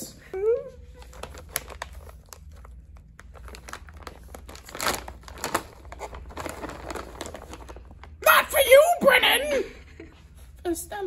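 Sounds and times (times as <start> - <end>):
plastic bag crinkling: 0.9 - 8.3.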